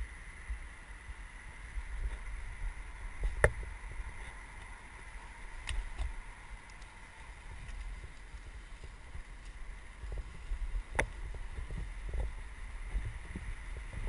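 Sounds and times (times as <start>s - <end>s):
faint high whine: 0.0s - 14.0s
muffled wind rumble: 0.0s - 14.0s.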